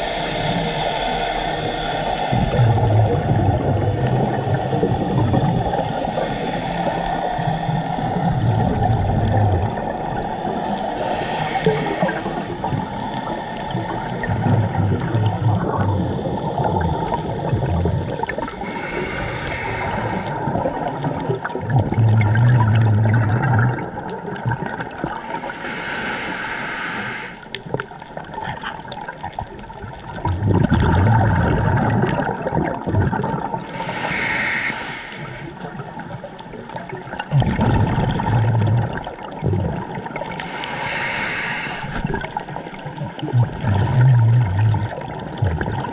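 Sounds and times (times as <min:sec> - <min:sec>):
regulator hiss on inhale: 0:00.0 - 0:17.5, 0:18.3 - 0:21.5, 0:25.0 - 0:27.8, 0:33.6 - 0:36.0, 0:40.1 - 0:42.7
exhaled bubbles gurgling: 0:00.0 - 0:45.9.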